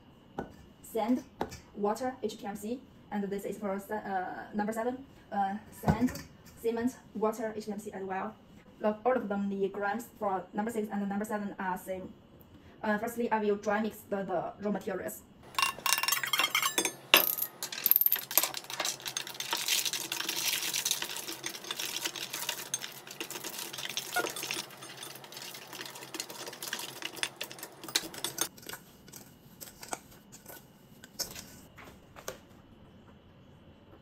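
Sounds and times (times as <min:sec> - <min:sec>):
metal dishes clinking on bowls: 0:15.5 - 0:28.5.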